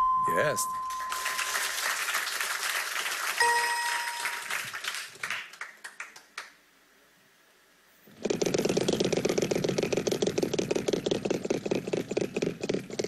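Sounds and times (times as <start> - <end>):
electronic game-show chime: 0.0 - 1.9, 3.4 - 4.5
audience applauding: 0.8 - 6.6.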